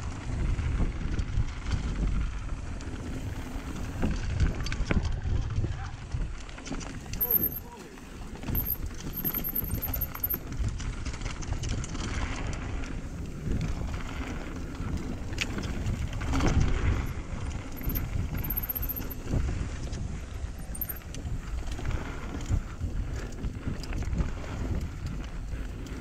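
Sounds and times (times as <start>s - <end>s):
bike frame rattling: 6.2s - 26.0s.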